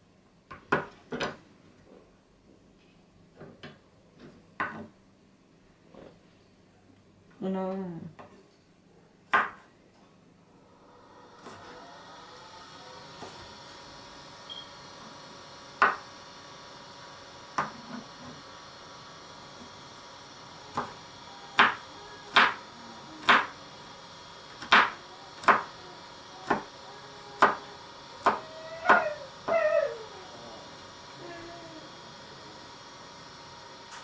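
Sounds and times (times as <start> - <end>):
knife chopping on wooden board: 9.3 - 9.7, 15.8 - 16.0, 17.6 - 17.9, 21.6 - 22.6, 23.2 - 23.5, 24.6 - 25.7, 26.4 - 26.7, 27.4 - 27.6, 28.2 - 29.1.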